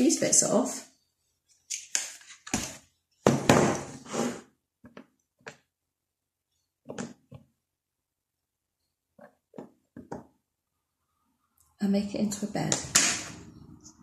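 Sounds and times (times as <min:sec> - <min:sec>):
plastic scrape: 0:03.8 - 0:04.5.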